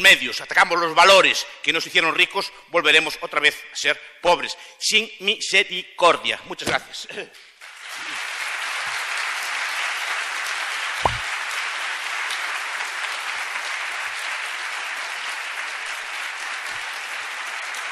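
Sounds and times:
audience applauding: 0:07.6 - 0:17.9
brief thump: 0:11.0 - 0:11.2.

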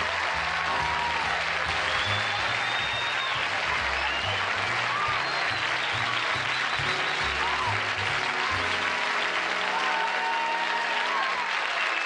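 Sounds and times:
band playing: 0:00.0 - 0:11.2
audience applauding: 0:00.0 - 0:12.0
whistles: 0:01.7 - 0:07.7, 0:11.8 - 0:12.0.

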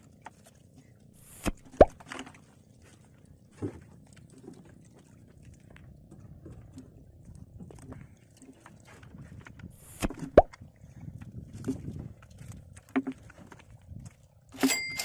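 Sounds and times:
low sea background: 0:00.0 - 0:15.0
water plops: 0:01.2 - 0:02.1, 0:09.8 - 0:10.6.

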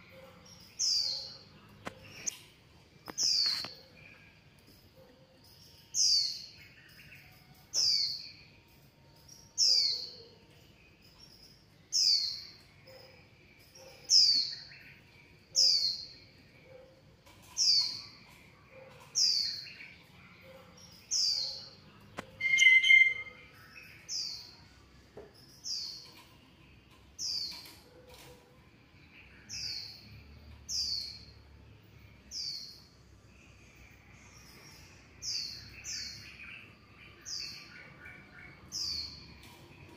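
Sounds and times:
fainter lower chirps: 0:22.2 - 0:23.8
animal high falling chirp: 0:22.4 - 0:23.4.

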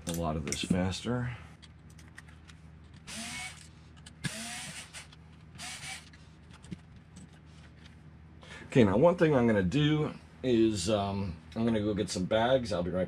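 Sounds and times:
cordless power driver whirring: 0:03.1 - 0:06.1.

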